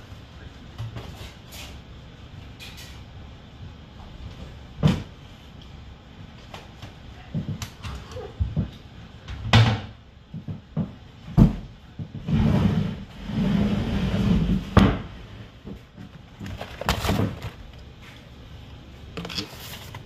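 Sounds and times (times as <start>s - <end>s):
rummaging noise: 15.9s - 18.3s, 19.0s - 20.0s.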